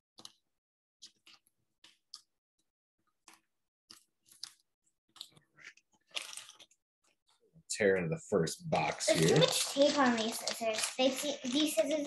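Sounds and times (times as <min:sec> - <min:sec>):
plastic packaging crinkling: 0:05.2 - 0:06.8, 0:08.9 - 0:12.0.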